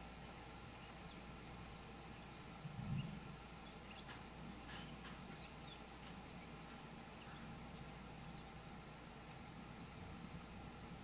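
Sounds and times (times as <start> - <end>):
steady hiss: 0.0 - 11.0
faint high bird chirps: 0.6 - 8.6
light ticks: 3.9 - 7.5.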